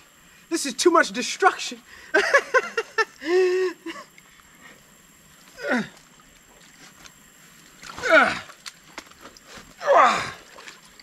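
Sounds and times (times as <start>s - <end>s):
man's falling vocal sounds: 5.6s - 6.0s, 7.9s - 8.6s, 9.8s - 10.5s.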